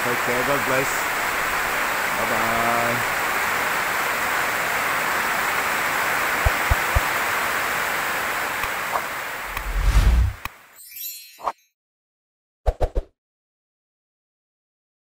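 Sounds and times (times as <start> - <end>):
heavy rain: 0.0 - 10.7
low whoosh: 9.5 - 10.4.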